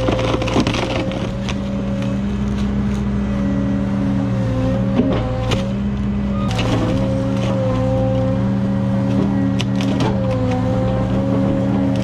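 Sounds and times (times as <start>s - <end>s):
wood cracking: 0.0s - 3.1s, 6.5s - 8.4s, 9.0s - 12.0s
heavy diesel engine running: 0.0s - 12.0s.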